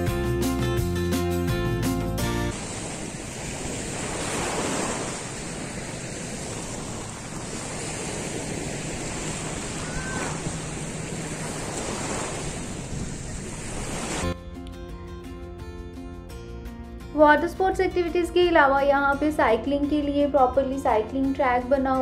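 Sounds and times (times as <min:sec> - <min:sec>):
background music: 0:00.0 - 0:02.6, 0:14.3 - 0:22.0
small waves breaking on sand: 0:02.5 - 0:14.4
wind buffeting microphone: 0:02.5 - 0:14.4.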